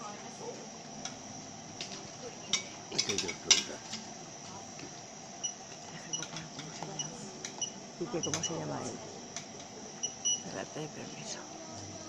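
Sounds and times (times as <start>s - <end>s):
faint background chatter: 0.0s - 12.0s
cutlery clinking against a pan: 2.5s - 3.8s.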